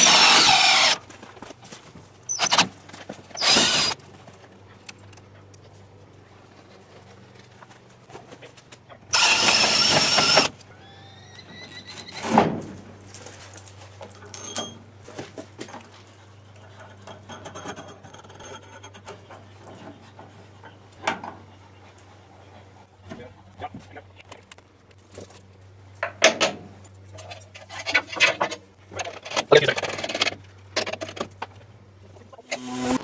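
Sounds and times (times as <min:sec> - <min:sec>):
cordless drill driving a screw: 0:00.0 - 0:01.0, 0:03.4 - 0:04.0, 0:09.1 - 0:10.5.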